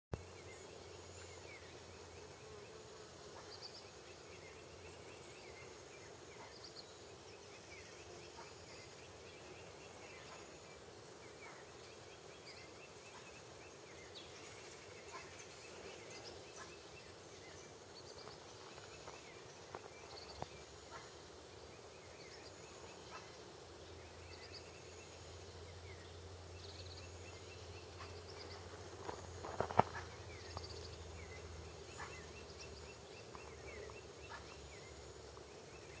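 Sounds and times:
outdoor background hiss: 0:00.1 - 0:36.0.

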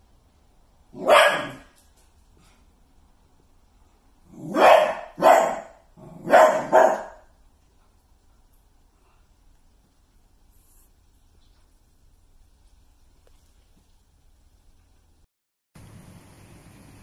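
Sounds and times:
dog barking: 0:01.0 - 0:01.7, 0:04.4 - 0:07.3.

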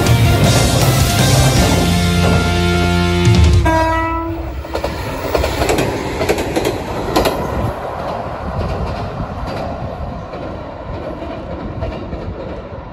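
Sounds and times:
electric train on steel bridge: 0:00.0 - 0:12.9
wheels clicking over rail joints: 0:04.6 - 0:12.9.

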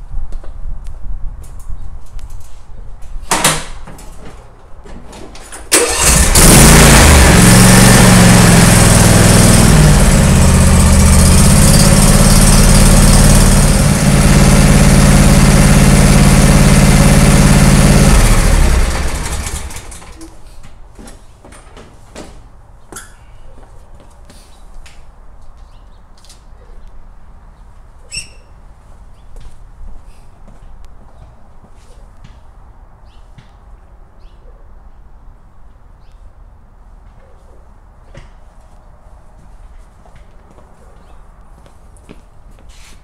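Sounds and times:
lawn tractor engine running: 0:05.6 - 0:20.3.

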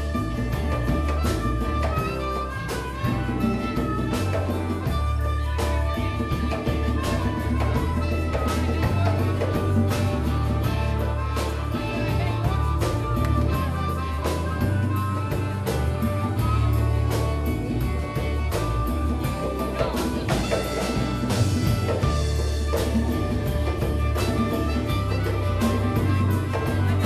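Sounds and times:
blues band playing: 0:00.0 - 0:27.0
driving bass line: 0:00.0 - 0:27.0
drum kit: 0:00.0 - 0:27.0
held lead notes: 0:00.0 - 0:27.0.

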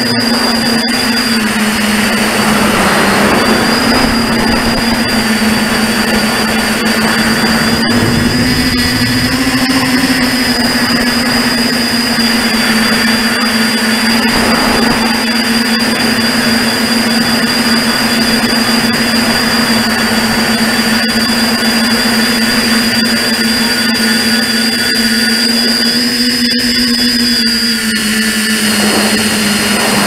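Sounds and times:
drone motors whining: 0:00.0 - 0:30.0
rush of air: 0:01.4 - 0:11.6.

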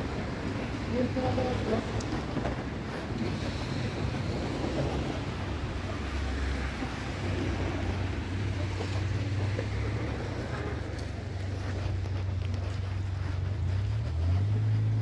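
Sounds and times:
low street rumble: 0:00.0 - 0:15.0.

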